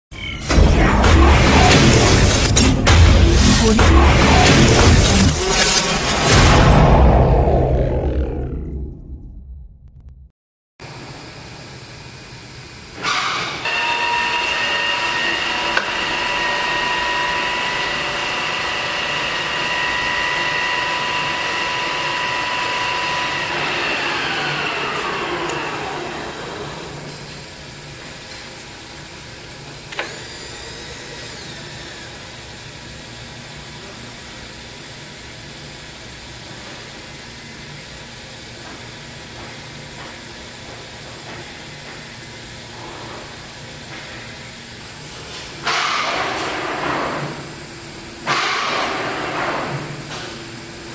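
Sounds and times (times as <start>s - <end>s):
milling machine motor whine: 13.6s - 27.8s, 29.3s - 33.7s
motor starting clunk: 23.4s - 27.4s, 29.9s - 32.1s.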